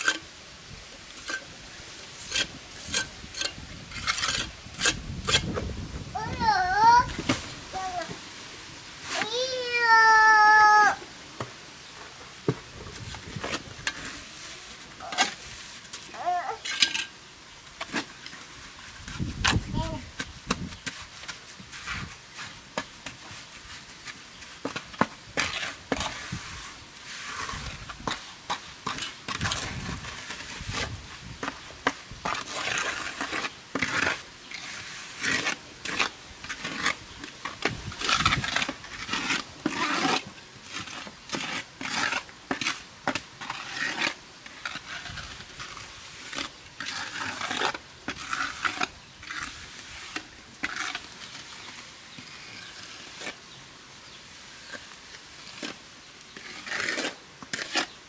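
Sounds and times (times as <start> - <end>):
scraping and knocking with tools: 2.1 - 5.6.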